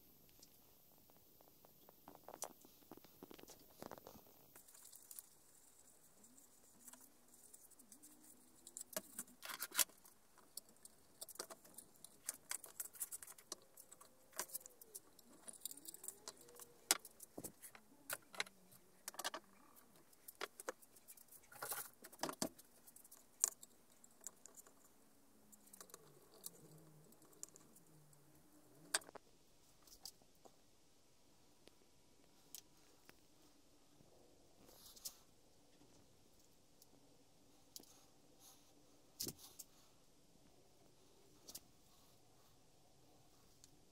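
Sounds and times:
clicks and rattles of handling: 1.7s - 27.9s.

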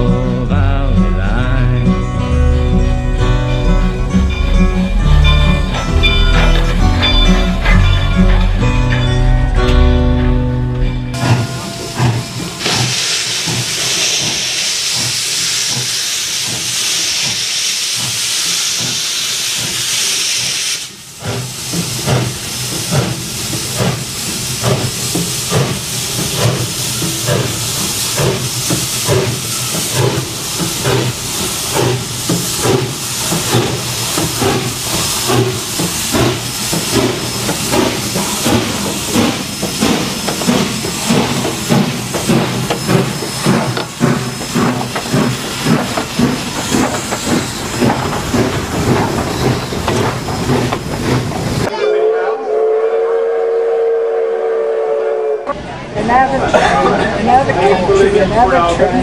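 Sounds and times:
steam locomotive exhaust chuffs: 2.8s - 55.6s
loud hiss of steam: 12.0s - 51.7s.

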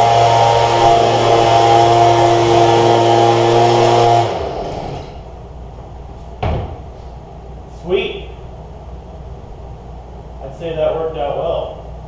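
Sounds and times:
leaf blower running: 0.0s - 5.3s.

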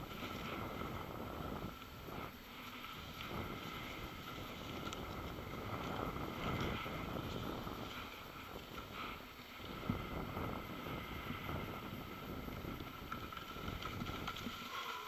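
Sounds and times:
wind buffeting microphone: 0.0s - 14.7s.

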